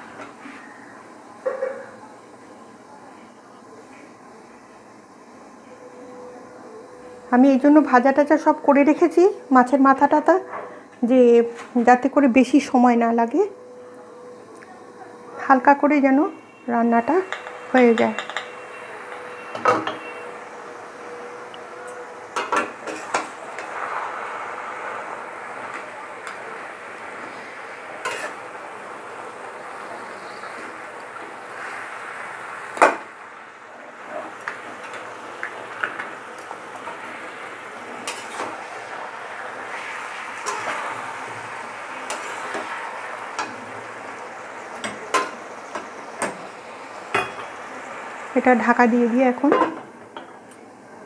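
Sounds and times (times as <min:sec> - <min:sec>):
food sizzling: 0:00.0 - 0:51.0
spatula knocking and scraping pan: 0:17.3 - 0:20.1
metal spatula scraping steel pan: 0:28.0 - 0:28.4, 0:38.0 - 0:38.5.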